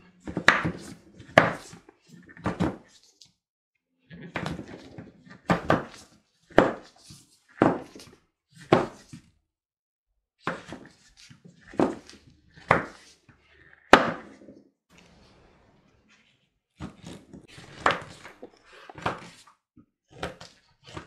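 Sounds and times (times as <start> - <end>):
knife chopping on wooden board: 8.6 - 9.1, 11.7 - 13.1, 13.9 - 14.5.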